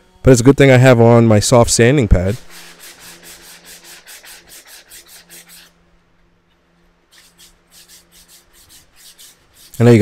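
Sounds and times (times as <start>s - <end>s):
sanding pad rubbing wood: 2.4s - 5.8s, 7.1s - 10.0s.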